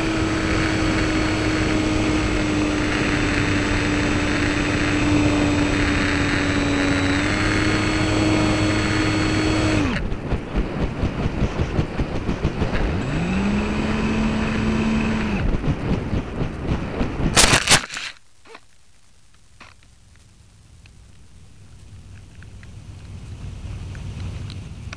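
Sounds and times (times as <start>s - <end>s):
electric motor and propeller whine: 0.0s - 17.8s
plane hitting the ground: 0.0s - 17.8s.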